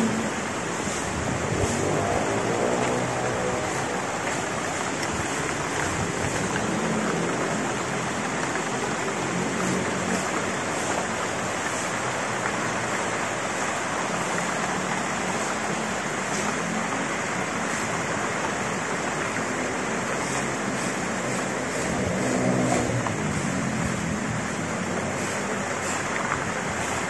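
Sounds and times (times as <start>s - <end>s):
running water rushing: 0.0s - 27.0s.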